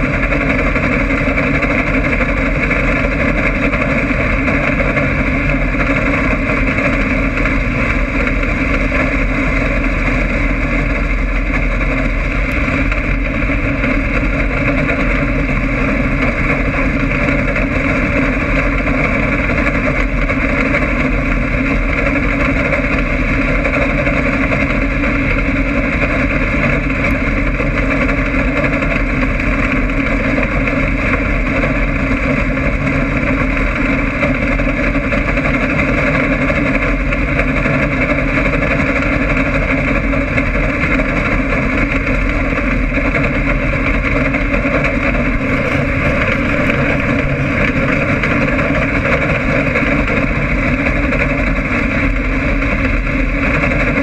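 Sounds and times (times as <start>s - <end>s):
race car engine drone: 0.0s - 54.0s.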